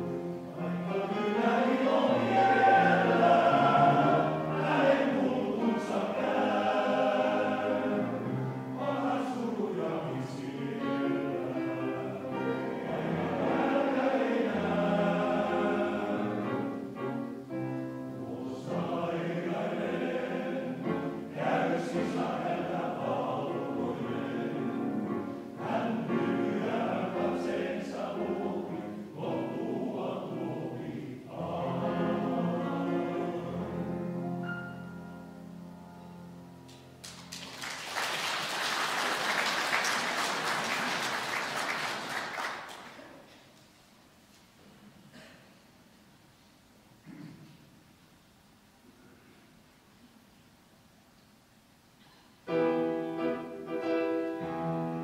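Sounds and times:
male choir singing: 0:00.2 - 0:34.2.

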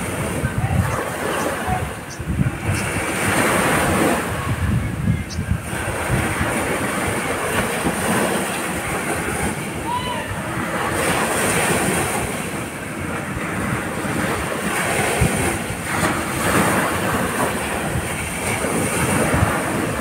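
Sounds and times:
waves breaking on beach: 0:00.0 - 0:20.0
wind rumbling on microphone: 0:00.0 - 0:20.0.

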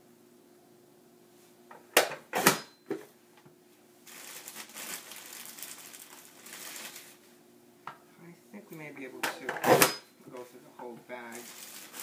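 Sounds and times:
plastic bag rustling: 0:04.0 - 0:07.3, 0:11.2 - 0:12.0.

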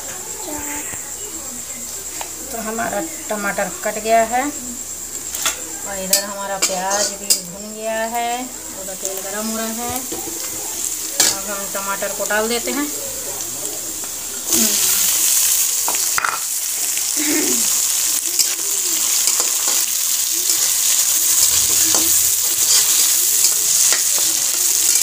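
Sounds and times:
onions sizzling in hot oil: 0:00.0 - 0:25.0
metal spatula scraping pan: 0:06.1 - 0:07.5, 0:20.5 - 0:25.0.

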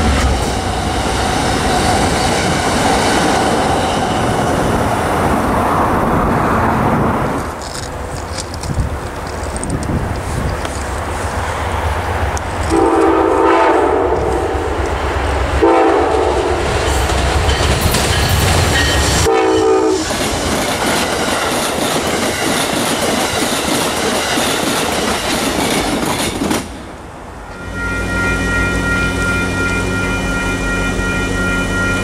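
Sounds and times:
locomotive deep rumble: 0:00.0 - 0:19.3
train wheels clickety-clack: 0:07.4 - 0:11.5, 0:16.1 - 0:27.0
train horn blasts: 0:12.7 - 0:14.7, 0:15.6 - 0:16.7, 0:19.2 - 0:20.1, 0:27.5 - 0:32.0.

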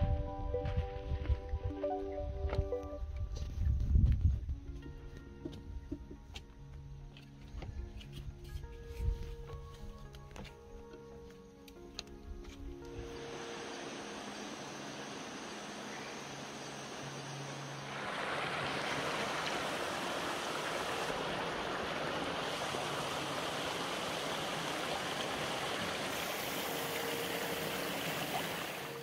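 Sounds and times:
creek water flowing: 0:12.9 - 0:29.0
water tumbling over rocks: 0:17.9 - 0:28.8.

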